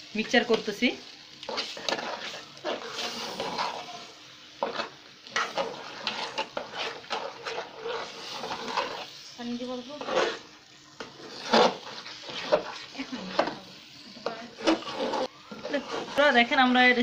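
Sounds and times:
faint sizzle: 0.0s - 17.0s
metal spoon scraping a pot: 1.5s - 3.9s, 4.6s - 9.1s, 10.0s - 13.6s, 14.2s - 16.4s.

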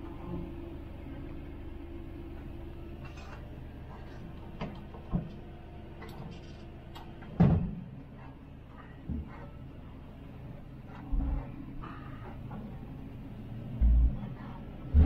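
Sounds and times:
heavy clunk: 4.0s - 9.6s, 10.8s - 12.8s, 13.7s - 15.0s.

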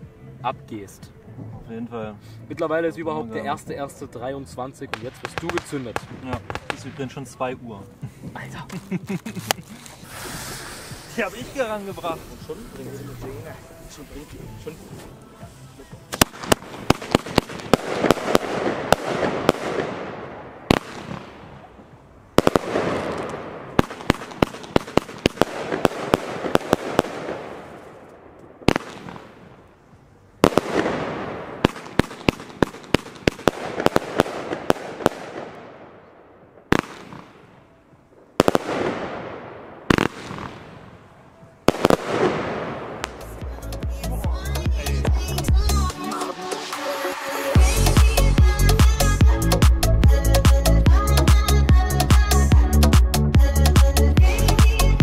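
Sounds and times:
firework launch reports: 3.1s - 15.1s
firework crackling: 4.7s - 29.8s, 30.4s - 37.6s, 38.3s - 52.5s.

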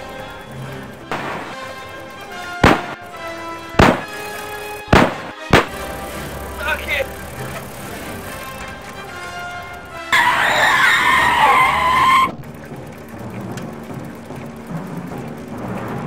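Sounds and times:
soundtrack music: 0.0s - 12.0s
wavering high squeal: 10.0s - 12.3s.

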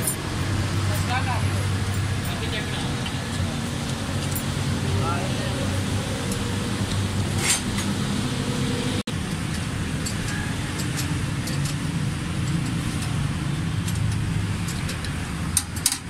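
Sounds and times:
vehicle engines humming: 0.0s - 16.0s.

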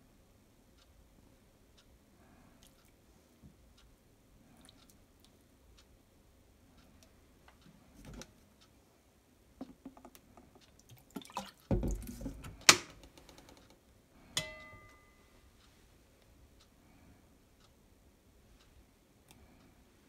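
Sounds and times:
liquid splashing: 10.9s - 11.7s
metal clinking on steel bowl: 14.4s - 15.2s.

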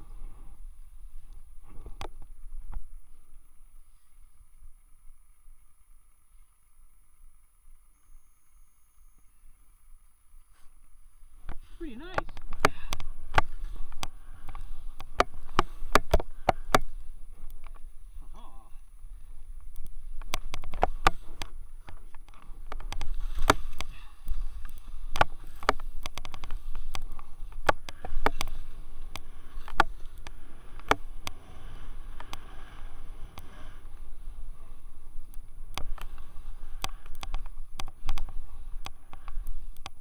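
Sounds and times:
rumble on microphone: 0.0s - 40.0s
sharp clicks and knocks: 11.4s - 17.9s, 19.6s - 31.4s, 35.7s - 40.0s
skis sliding through snow: 22.5s - 40.0s.

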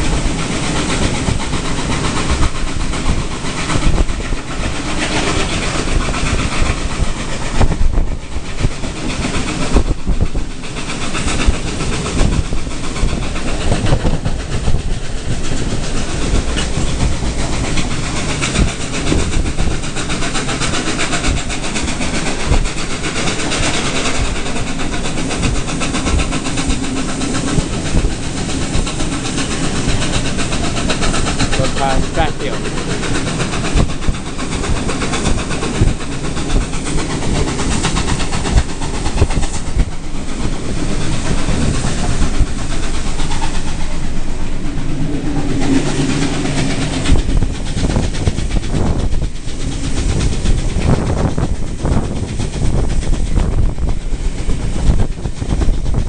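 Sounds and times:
rushing air: 0.0s - 56.0s
train wheels clattering on rails: 0.0s - 56.0s.

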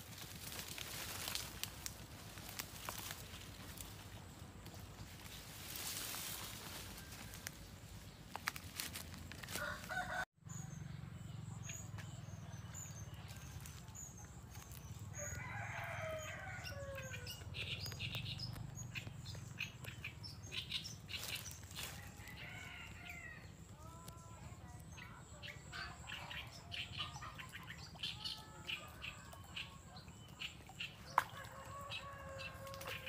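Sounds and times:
palm fronds rustling and snapping: 0.0s - 10.2s
rustles and clicks: 4.8s - 10.0s
rooster crowing: 9.6s - 10.3s, 15.2s - 17.3s, 31.3s - 32.9s.

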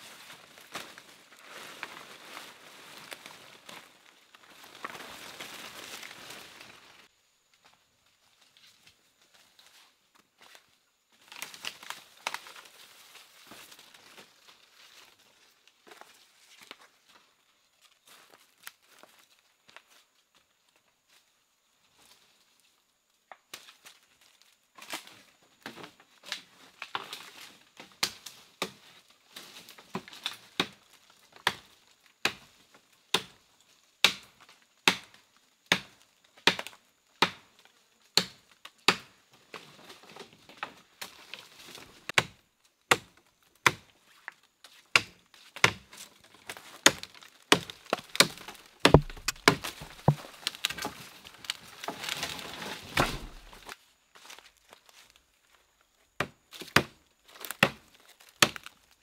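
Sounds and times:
blade chopping wood: 46.9s - 50.9s, 53.0s - 53.6s.

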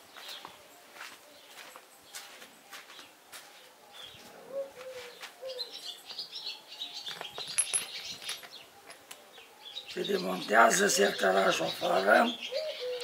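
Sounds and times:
metal parts clicking: 7.1s - 9.2s.

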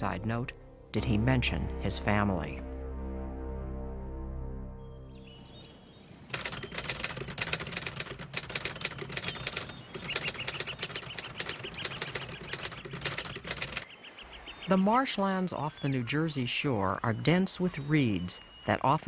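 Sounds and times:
birds chirping: 4.8s - 7.8s, 8.6s - 19.0s
birds flapping wings: 6.3s - 13.9s.

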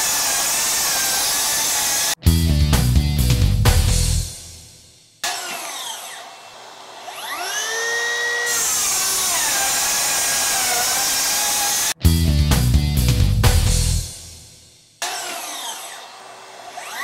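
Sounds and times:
saw cutting through boards: 0.0s - 2.2s, 5.2s - 12.0s, 15.0s - 17.0s
music: 2.2s - 5.2s, 12.0s - 15.0s
circular saw motor whine: 5.3s - 11.9s, 15.0s - 17.0s.

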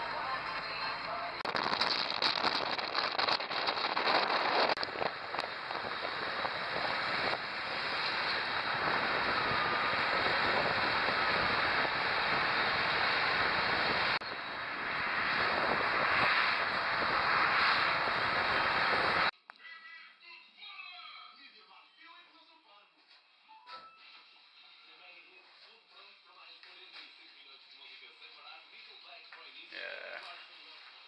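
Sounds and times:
wind and road noise in car: 0.0s - 19.3s.

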